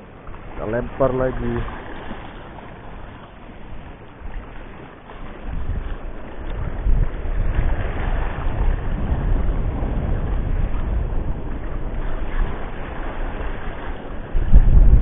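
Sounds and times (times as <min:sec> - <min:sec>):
waves washing against rocks: 0:00.0 - 0:15.0
wind buffeting microphone: 0:00.0 - 0:15.0.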